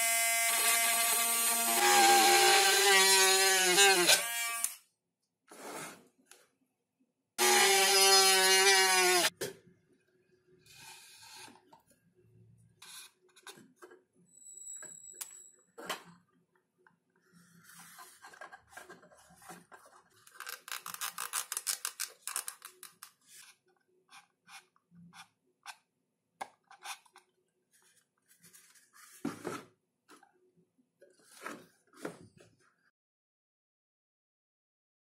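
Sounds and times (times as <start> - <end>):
thin squeak: 14.3 - 15.6.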